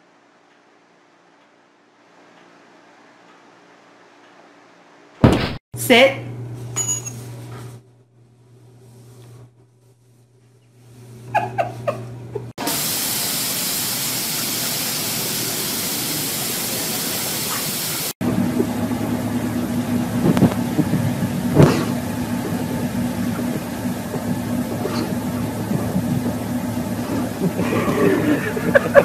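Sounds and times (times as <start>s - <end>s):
water spraying: 12.6s - 29.0s
car engine idling: 18.2s - 28.9s.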